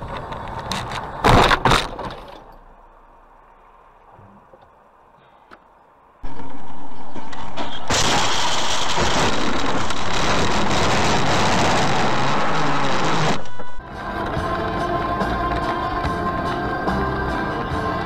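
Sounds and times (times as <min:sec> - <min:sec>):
car crash hit: 0:01.2 - 0:02.4, 0:07.2 - 0:13.4
loud overloaded noise: 0:06.2 - 0:18.0.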